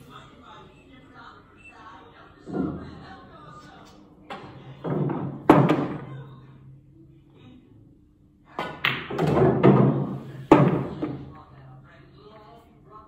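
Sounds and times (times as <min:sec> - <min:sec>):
pool balls knocking and rolling: 0:02.5 - 0:03.2, 0:04.3 - 0:06.2, 0:08.6 - 0:11.4
cue striking ball: 0:08.6 - 0:11.1.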